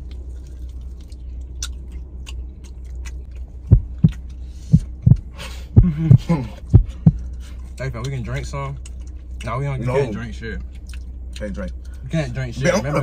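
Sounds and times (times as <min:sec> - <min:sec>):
people chewing: 0:00.0 - 0:12.1
low hum: 0:00.0 - 0:13.0
deep thumps: 0:03.5 - 0:07.3.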